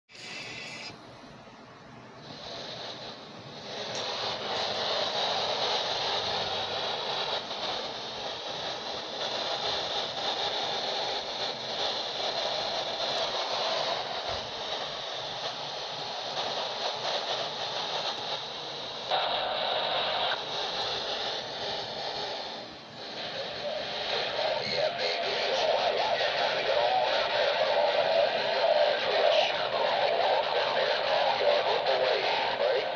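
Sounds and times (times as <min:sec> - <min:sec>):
radio static hiss: 0:00.1 - 0:01.2, 0:02.1 - 0:32.9.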